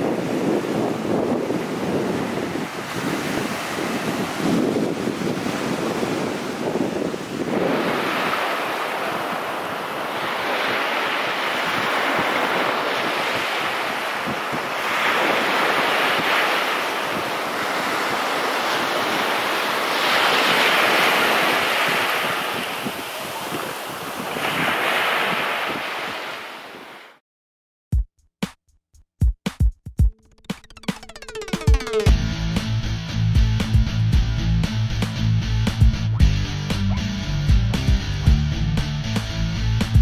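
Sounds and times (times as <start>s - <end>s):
wind buffeting microphone: 0.0s - 26.2s
surf breaking on beach: 0.0s - 27.2s.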